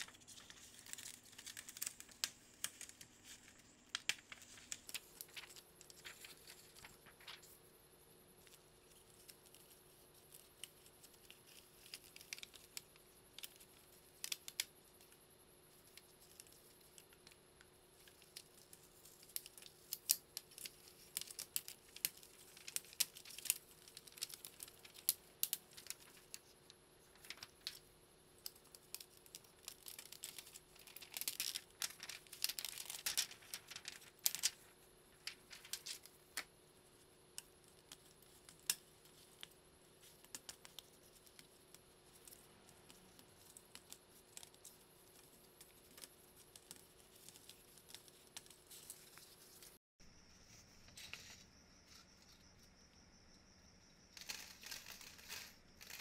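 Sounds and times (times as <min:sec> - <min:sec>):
plastic sheets crinkling: 0:00.0 - 0:07.6, 0:18.0 - 0:27.8, 0:28.4 - 0:36.5.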